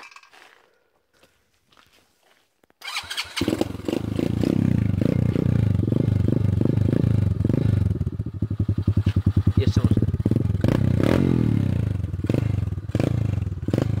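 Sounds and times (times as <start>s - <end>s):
motorbike engine starting and idling: 2.8s - 14.0s.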